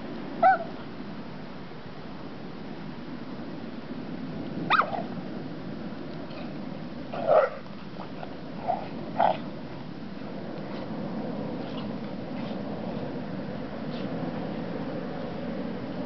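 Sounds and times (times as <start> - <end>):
dog yelp: 0.4 - 0.7, 4.7 - 5.1
dogs barking: 0.4 - 0.7, 4.7 - 5.1, 7.2 - 7.6.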